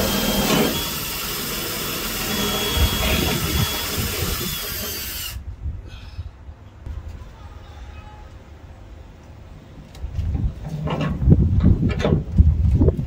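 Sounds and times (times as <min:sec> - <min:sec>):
power drill boring through wood: 0:00.0 - 0:05.4.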